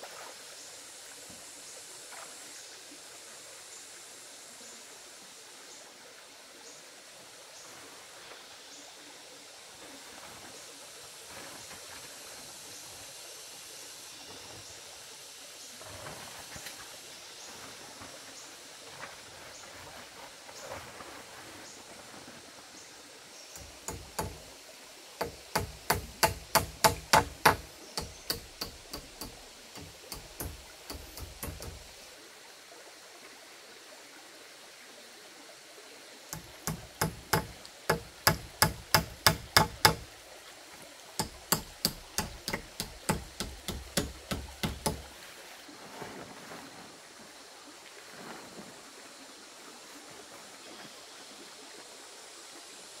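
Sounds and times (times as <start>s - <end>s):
stream rushing: 0.0s - 5.5s, 6.2s - 53.0s
sharp knocks: 23.6s - 24.5s, 25.2s - 32.0s, 36.4s - 40.1s, 41.2s - 45.1s.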